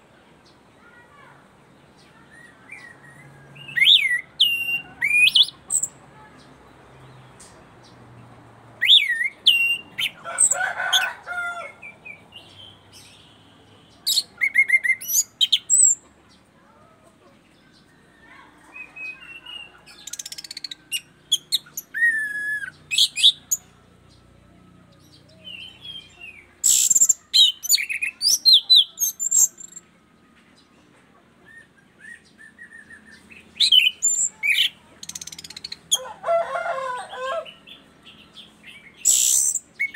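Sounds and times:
bird singing whistles and chatter: 2.0s - 6.0s, 8.8s - 10.6s, 11.8s - 16.0s, 18.7s - 23.6s, 25.1s - 29.9s, 31.4s - 36.0s, 37.7s - 39.9s.

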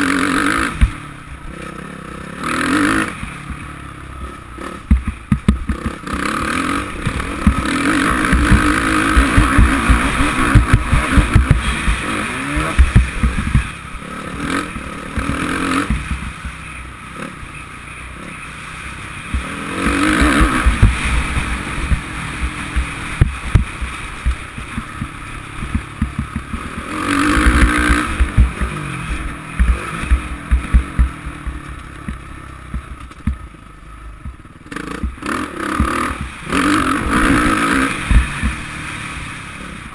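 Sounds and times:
motocross engine surging: 0.0s - 39.9s
low thumps: 4.8s - 6.0s, 7.0s - 13.8s, 20.2s - 33.5s.

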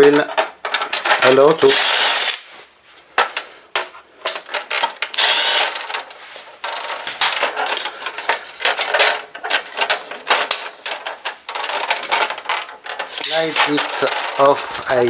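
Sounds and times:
plastic parts clicking and rattling: 0.0s - 2.4s, 3.2s - 15.0s
cordless drill spinning out screw: 1.7s - 2.4s, 5.1s - 5.7s.

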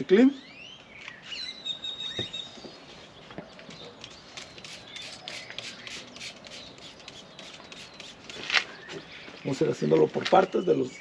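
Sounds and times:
spray bottle squirting: 4.1s - 8.6s.

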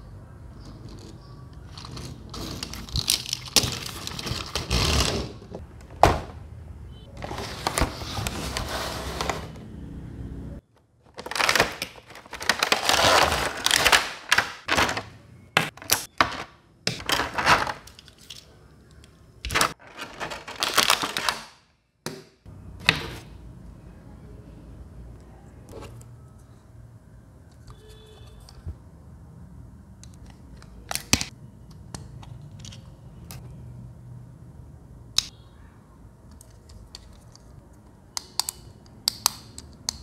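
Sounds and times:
cardboard and plastic rustling: 7.2s - 9.6s, 11.0s - 15.2s, 17.0s - 18.4s, 19.5s - 21.4s.

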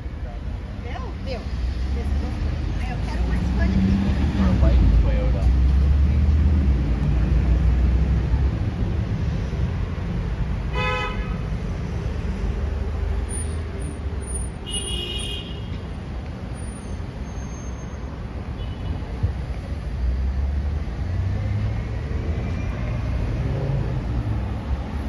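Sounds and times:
passing cars rumbling: 0.0s - 25.0s
vehicle horn toot: 10.7s - 11.4s, 14.6s - 15.7s.

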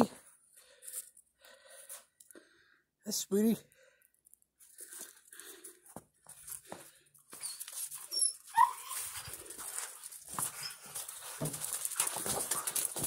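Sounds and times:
dogs scuffling: 6.6s - 13.0s
dog yip: 7.4s - 9.4s.

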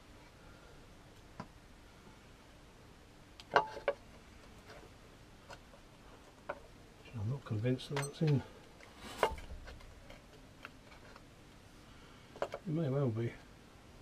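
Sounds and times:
faint clicks of metal parts: 7.5s - 11.6s, 12.3s - 13.5s.

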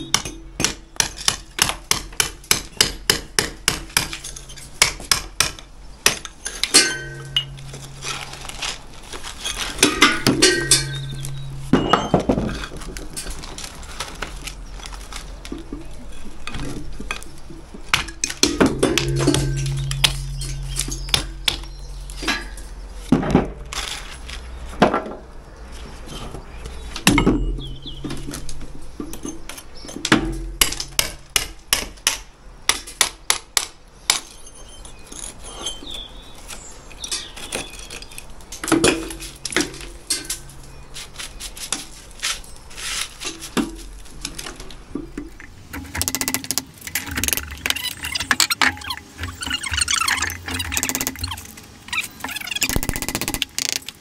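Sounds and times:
scraping and rattling: 6.5s - 22.8s, 41.5s - 54.0s.

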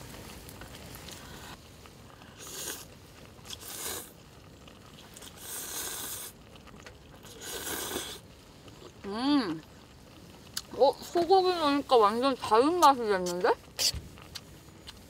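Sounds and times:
noodles being slurped: 0.6s - 9.0s.

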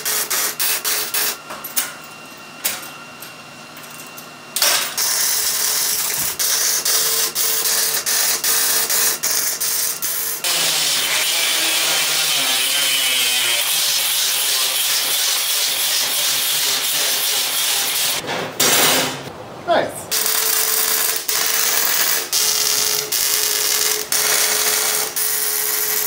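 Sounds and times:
arc welding crackling: 0.0s - 1.4s, 4.6s - 18.2s, 20.1s - 26.0s
angle grinder cutting steel mesh: 4.8s - 18.2s, 20.1s - 26.0s.

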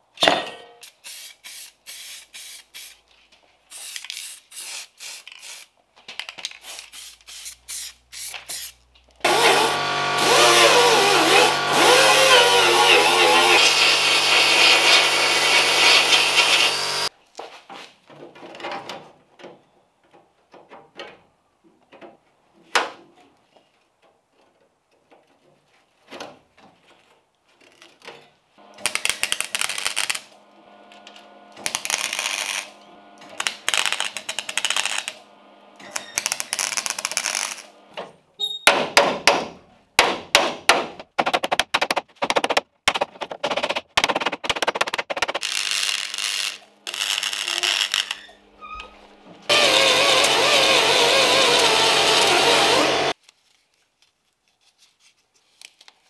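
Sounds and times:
welder crackling: 8.2s - 17.1s, 28.6s - 37.9s, 44.0s - 48.4s, 49.5s - 53.2s
welder hum: 9.2s - 17.1s, 28.6s - 37.9s, 45.4s - 53.2s.

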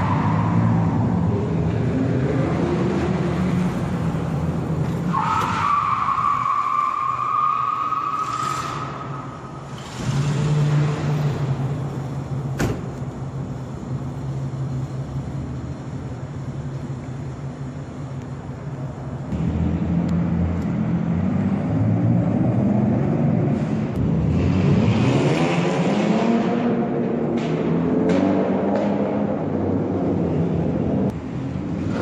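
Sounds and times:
car engine revving: 19.3s - 32.0s.

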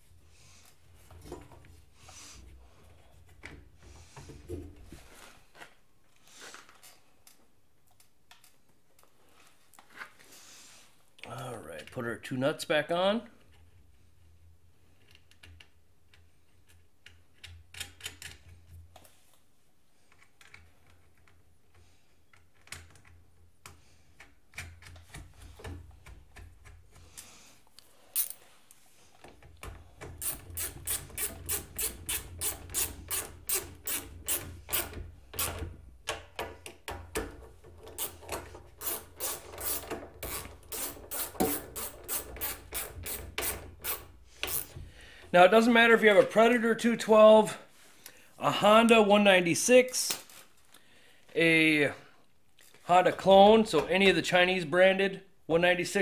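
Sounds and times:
socket ratchet clicking: 30.2s - 35.6s, 37.9s - 44.7s
nuts scraping on studs: 37.6s - 44.8s.

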